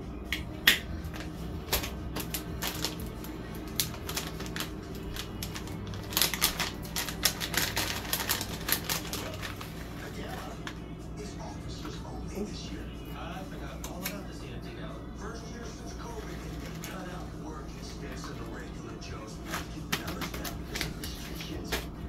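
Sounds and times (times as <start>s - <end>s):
music: 0.0s - 22.0s
plastic bag crinkling: 1.1s - 10.7s, 16.0s - 17.2s.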